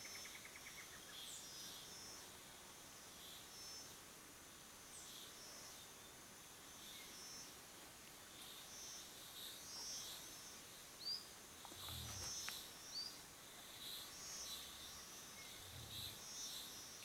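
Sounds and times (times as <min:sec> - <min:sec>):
insect chirping in pulses: 0:08.4 - 0:17.0.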